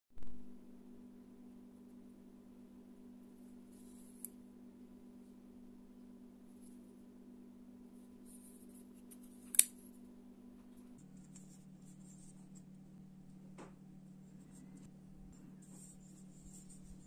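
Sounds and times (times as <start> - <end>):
knife blade locking click: 9.5 - 9.8
sharp metallic click: 9.5 - 9.8.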